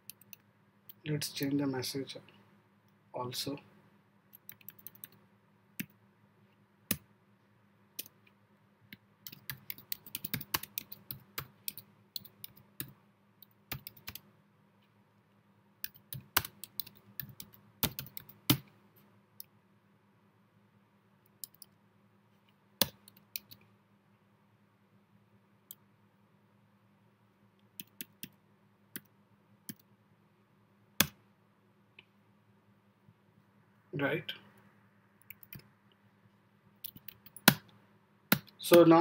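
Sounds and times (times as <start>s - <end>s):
computer keyboard typing: 4.4s - 5.2s, 9.2s - 14.2s, 15.8s - 18.6s, 22.8s - 23.6s, 27.8s - 28.3s, 35.3s - 35.6s, 36.8s - 37.6s.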